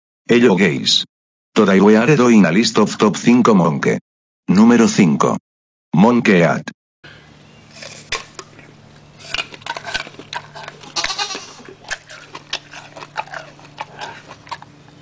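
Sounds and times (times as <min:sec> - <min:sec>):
faint low hum: 0:07.1 - 0:15.0
wet chewing smacks: 0:07.7 - 0:15.0.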